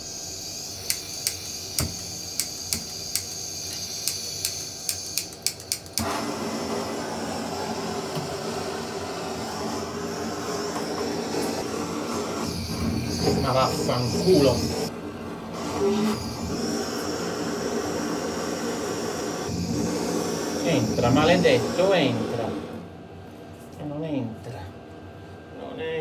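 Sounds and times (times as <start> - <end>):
gas hissing: 0.0 - 14.9, 15.5 - 22.8
blowtorch flame rushing: 0.0 - 22.9
igniter clicking: 0.8 - 6.1.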